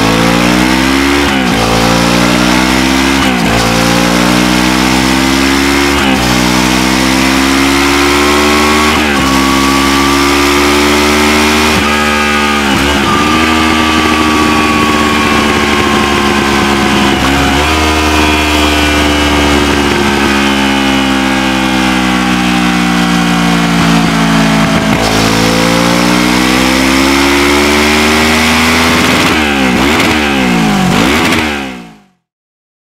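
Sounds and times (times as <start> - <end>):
motorcycle engine revving: 0.0 - 32.3.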